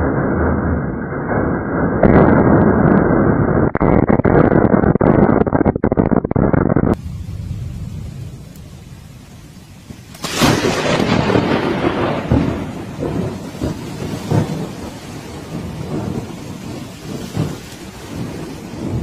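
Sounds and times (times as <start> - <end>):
thunder rumbling: 0.0 - 5.6, 6.4 - 19.0
heavy rain: 7.0 - 19.0.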